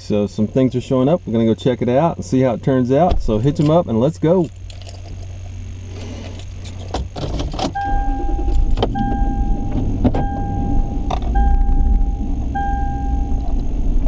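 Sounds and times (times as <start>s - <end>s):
car engine rumble: 0.0s - 14.0s
keys jangling: 3.6s - 5.5s
dashboard warning chime: 7.7s - 13.8s.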